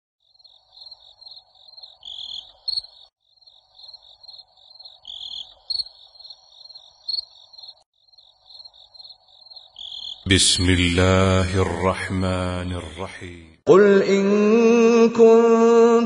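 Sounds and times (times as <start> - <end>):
insects chirping trill: 0.2 - 10.6.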